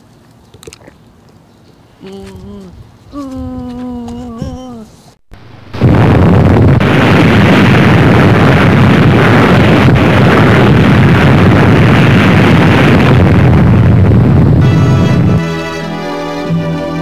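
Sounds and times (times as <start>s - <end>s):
explosion rumble: 5.3s - 15.4s.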